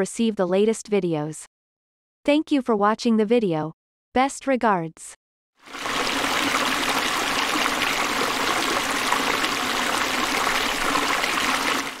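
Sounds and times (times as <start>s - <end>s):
running water rushing: 5.6s - 12.0s.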